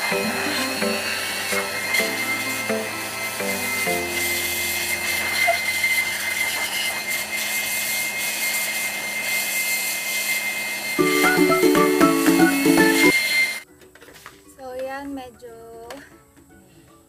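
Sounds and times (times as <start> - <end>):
blower rushing air with whine: 0.0 - 13.6.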